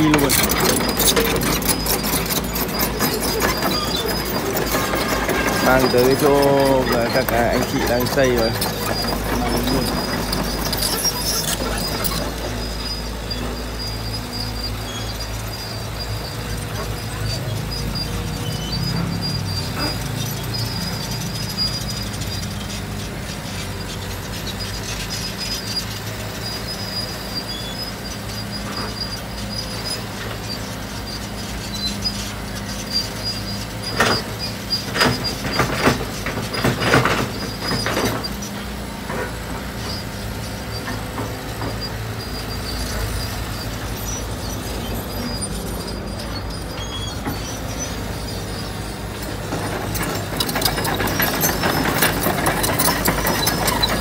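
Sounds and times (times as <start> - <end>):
metal clanks and knocks: 0.0 - 12.7, 33.9 - 40.0, 49.1 - 54.0
excavator diesel engine running: 0.0 - 54.0.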